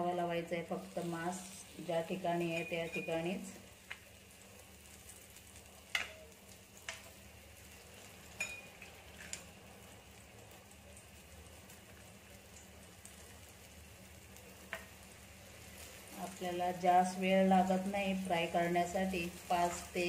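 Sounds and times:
clams frying in oil: 0.0 - 20.0
crackles and pops of frying: 0.0 - 20.0.

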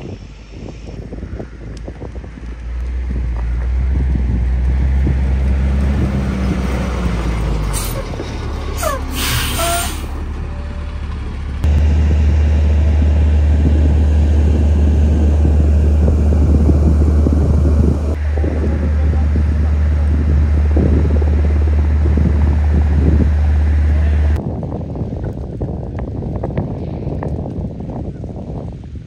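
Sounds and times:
fire engine rumble: 0.0 - 29.0
air hiss: 8.8 - 10.1.

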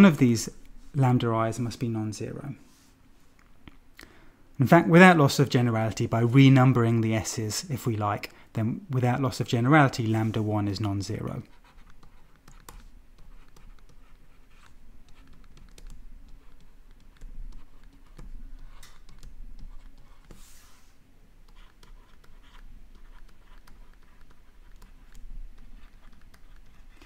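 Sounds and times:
stylus tapping on tablet screen: 21.5 - 27.0.

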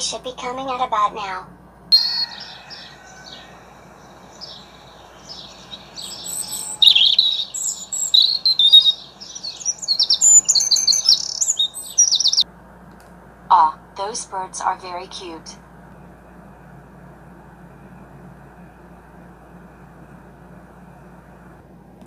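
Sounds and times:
small birds chirping: 1.9 - 12.4.

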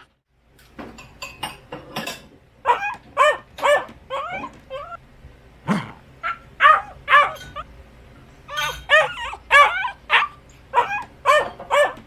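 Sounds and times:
dog yipping and whining: 2.6 - 5.0, 6.2 - 7.7, 8.5 - 12.0.

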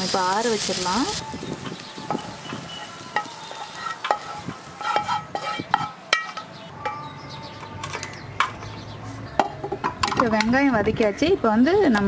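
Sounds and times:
spatula clinking on metal plate: 3.2 - 7.0.

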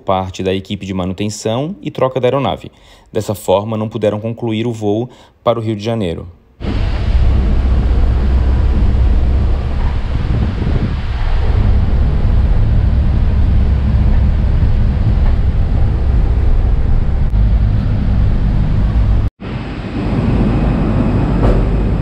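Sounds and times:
background hum: 6.2 - 19.3
engine and road rumble: 6.6 - 22.0
wind buffeting microphone: 6.6 - 22.0.

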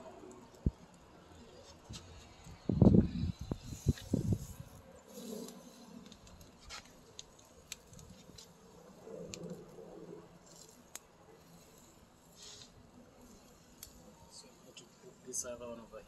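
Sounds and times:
chicken set on metal grill grate: 3.4 - 15.0.

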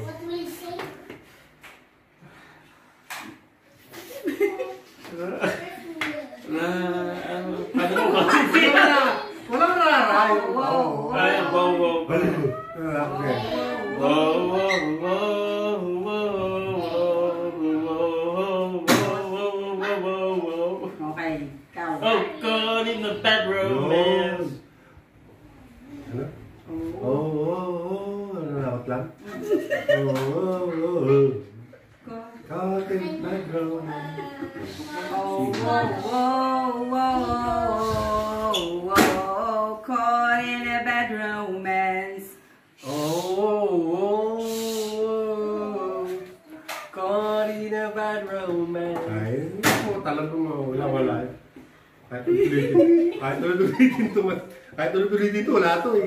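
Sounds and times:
person singing unaccompanied: 10.2 - 21.0, 26.7 - 29.0, 29.9 - 40.6, 42.8 - 49.6
sharp clap or knock: 49.6 - 50.0.

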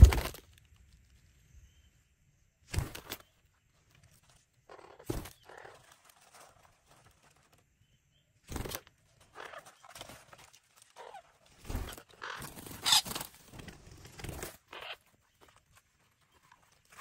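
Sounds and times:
birds scratching on tree bark: 8.6 - 17.0.

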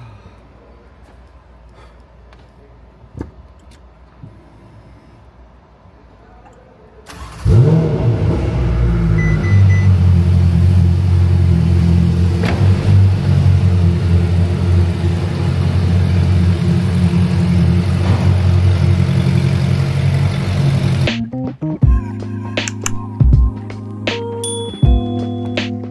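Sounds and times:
sports car engine revving: 7.1 - 21.2.

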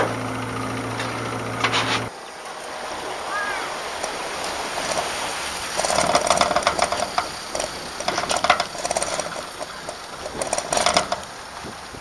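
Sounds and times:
rapid mechanical rattling: 4.0 - 12.0.

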